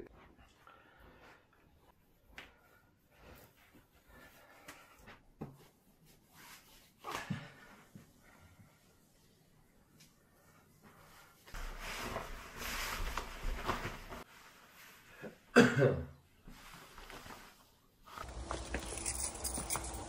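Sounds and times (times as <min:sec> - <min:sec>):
clothing rustling: 0:00.0 - 0:15.5, 0:16.4 - 0:20.0
person coughing: 0:15.5 - 0:16.2.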